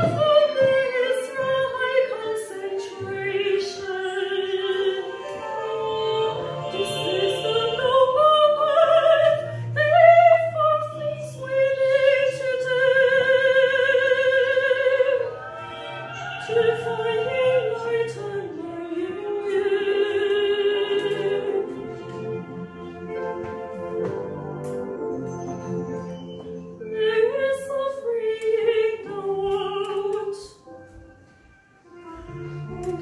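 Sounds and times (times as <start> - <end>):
woman singing with vibrato: 0.0 - 22.4, 26.8 - 30.7
soft sustained backing accompaniment: 0.0 - 33.0.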